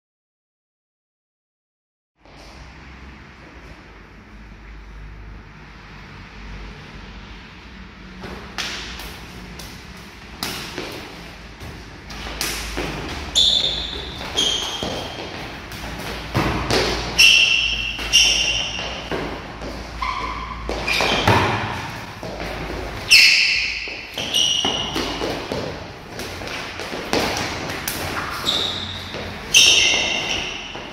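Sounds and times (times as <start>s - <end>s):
shoe soles squeaking: 8.2s - 30.9s.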